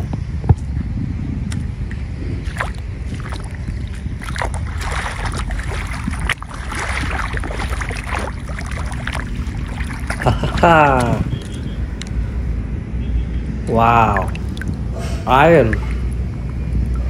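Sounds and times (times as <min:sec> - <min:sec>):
wind rumbling on microphone: 0:00.0 - 0:17.0
footsteps on wet paving: 0:02.4 - 0:11.8.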